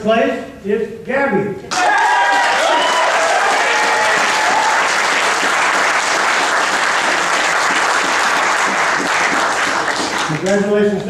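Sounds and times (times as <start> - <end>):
voices cheering: 1.7 - 6.0
audience applauding: 1.7 - 10.7.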